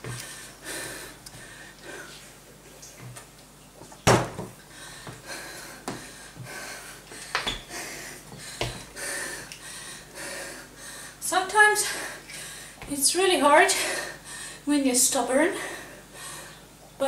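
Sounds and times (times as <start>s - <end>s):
person breathing hard: 0.1s - 2.2s, 4.7s - 11.2s, 11.8s - 12.8s, 13.7s - 14.7s, 15.5s - 16.6s.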